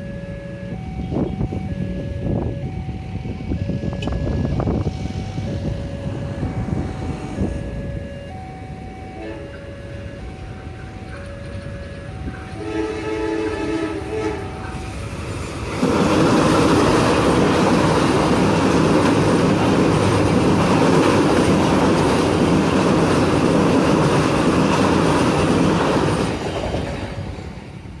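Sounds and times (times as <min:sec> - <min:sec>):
train rumbling over steel bridge: 0:00.0 - 0:28.0
locomotive horn blasts: 0:09.1 - 0:10.1, 0:11.9 - 0:14.6.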